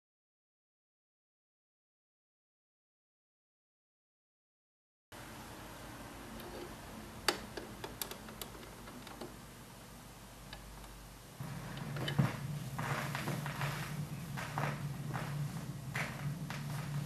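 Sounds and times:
record surface hiss: 0:05.2 - 0:17.0
louder low sound: 0:11.4 - 0:17.0.

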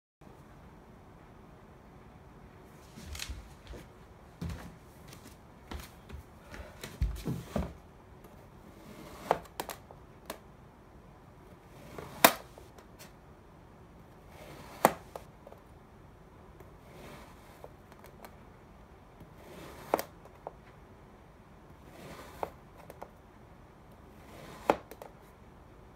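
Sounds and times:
light taps and dull bumps: 0:04.4 - 0:07.8.

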